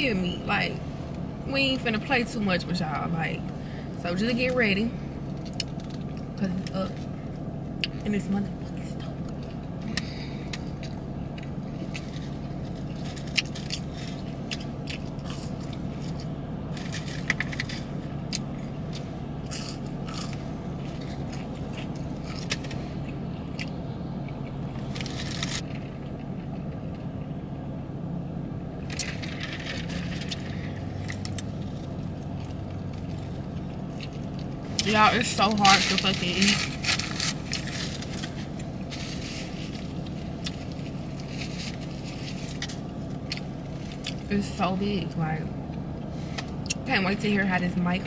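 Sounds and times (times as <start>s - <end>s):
steady low hum: 0.0s - 48.0s
person chewing and biting: 9.2s - 27.0s
crinkly rustles: 28.9s - 44.2s.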